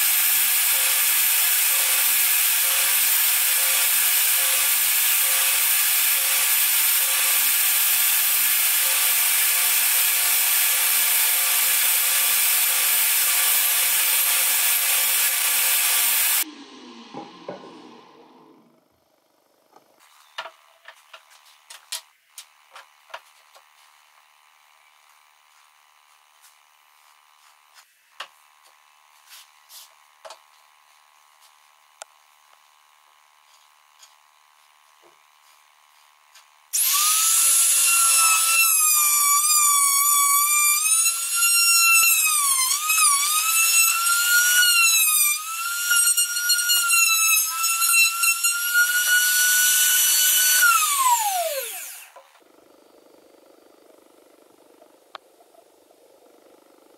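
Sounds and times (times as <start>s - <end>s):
trim router whining: 0.0s - 19.0s, 36.8s - 52.4s.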